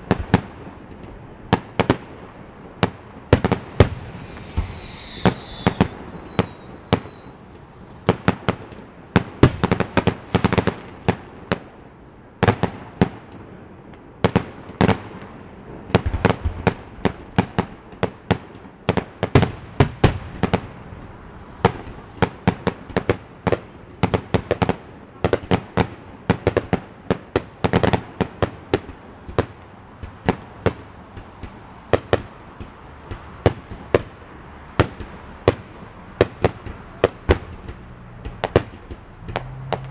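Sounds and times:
fireworks popping: 0.0s - 11.7s, 12.4s - 39.9s
firework whistle falling: 1.8s - 8.2s, 34.8s - 39.9s.

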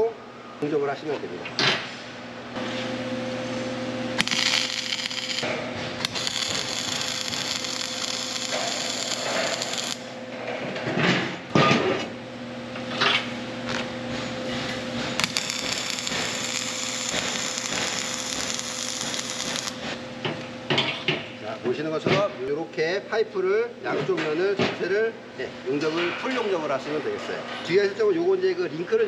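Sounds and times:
welding arc crackling: 4.2s - 10.2s, 15.2s - 19.8s.

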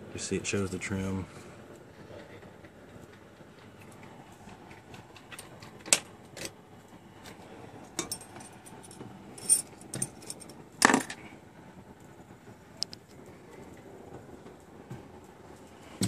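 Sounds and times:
light metallic clinks: 8.0s - 11.2s.

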